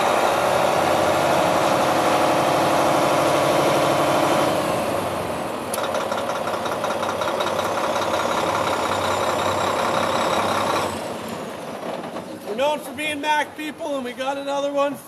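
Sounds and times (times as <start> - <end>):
diesel truck engine idling: 0.0 - 14.6.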